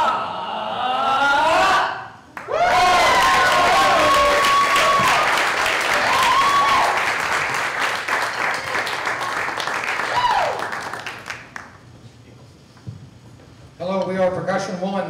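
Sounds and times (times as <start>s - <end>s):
long whoops: 0.0s - 7.1s, 10.0s - 10.8s
audience applauding and cheering: 2.3s - 11.9s.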